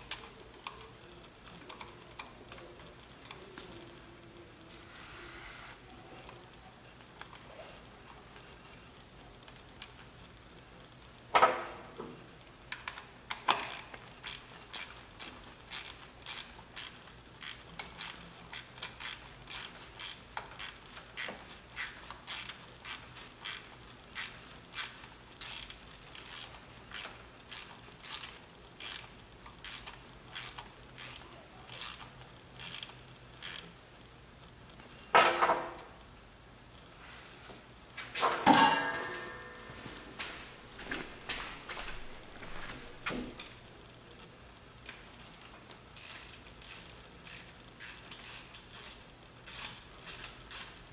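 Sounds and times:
ratchet wrench clicking: 12.8 - 33.7, 45.2 - 50.8.

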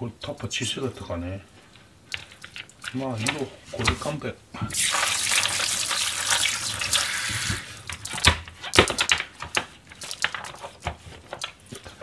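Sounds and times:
faucet running water: 4.7 - 8.2.

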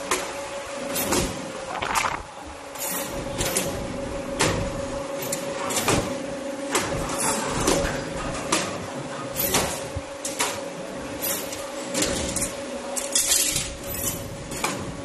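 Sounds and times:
machine hum: 1.4 - 5.2.

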